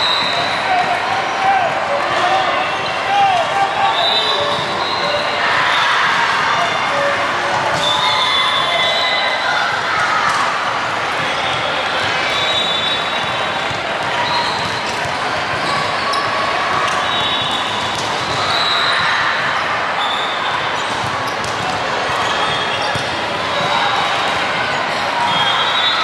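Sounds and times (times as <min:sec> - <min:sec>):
chatter of players and spectators: 0:00.0 - 0:26.0
volleyballs struck and bouncing: 0:13.2 - 0:16.0, 0:20.8 - 0:24.6.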